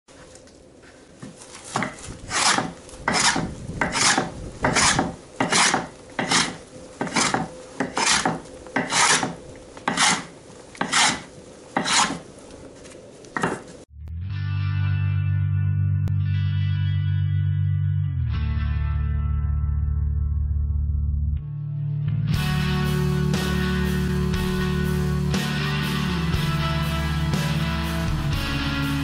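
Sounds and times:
hand tool rasping wood: 1.6s - 12.3s, 13.4s - 13.8s.

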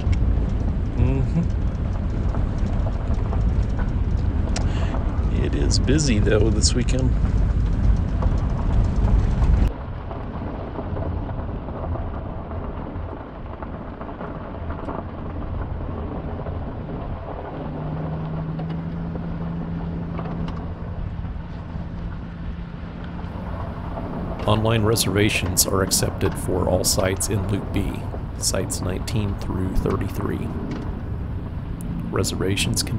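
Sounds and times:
vehicle driving on gravel: 0.0s - 32.9s
steady hum: 0.9s - 9.7s, 18.1s - 32.9s.

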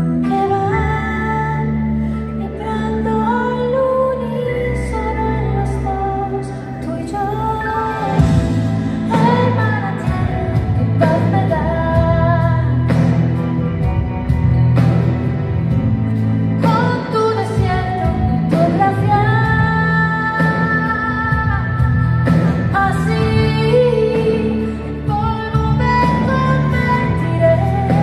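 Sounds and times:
live band playing: 0.0s - 28.0s
heavy bass line: 7.5s - 17.0s.

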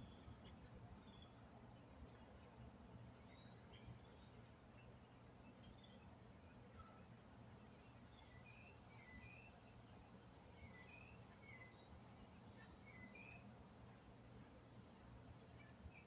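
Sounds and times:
bird chirps: 3.2s - 6.1s, 7.8s - 9.8s, 10.5s - 13.5s
high-pitched insect trill: 7.7s - 13.6s.

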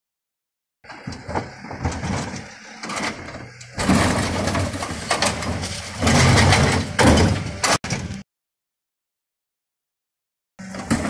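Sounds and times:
hydraulic bin lifter running: 0.8s - 8.2s, 10.6s - 11.0s
rubbish tumbling out: 0.9s - 8.0s
bins clattering against lifter: 0.9s - 8.2s.

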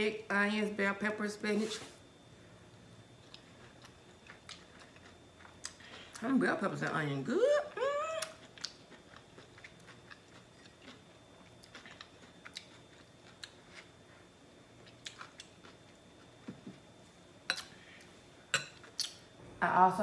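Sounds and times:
person chewing food: 3.2s - 6.3s, 8.2s - 16.9s.

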